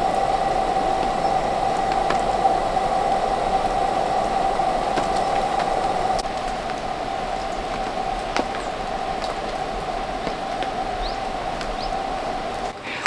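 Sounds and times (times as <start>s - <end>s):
gas lantern hissing: 0.0s - 13.0s.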